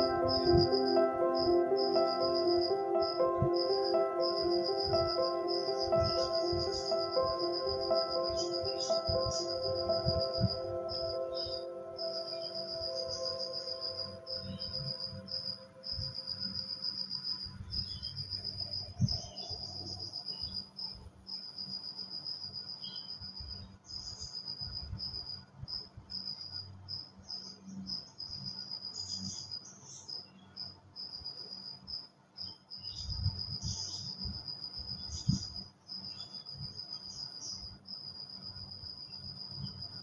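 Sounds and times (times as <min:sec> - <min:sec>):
musical tone: 0:00.0 - 0:16.3
cricket chirping: 0:00.0 - 0:40.0.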